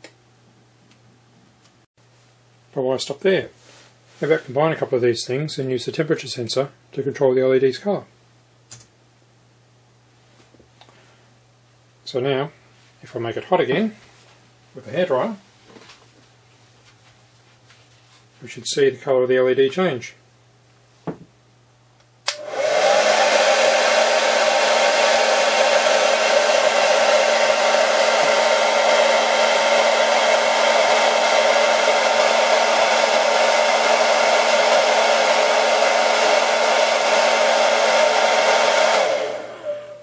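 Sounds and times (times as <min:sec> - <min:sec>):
hairdryer switch click: 0:22.2 - 0:22.8
hairdryer blowing: 0:22.3 - 0:40.0.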